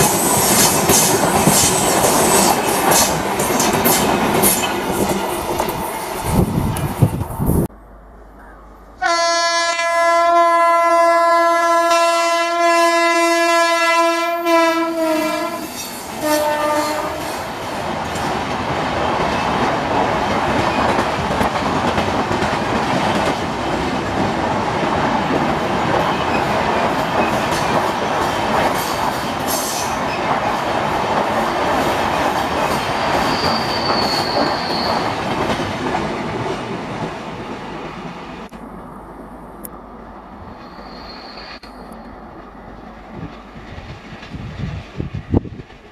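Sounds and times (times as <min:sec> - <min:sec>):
train rail clatter: 0:00.0 - 0:07.2, 0:15.1 - 0:37.2, 0:40.9 - 0:45.9
train horn blasts: 0:09.0 - 0:17.4
high wheel squeal: 0:33.0 - 0:35.2, 0:40.6 - 0:41.6.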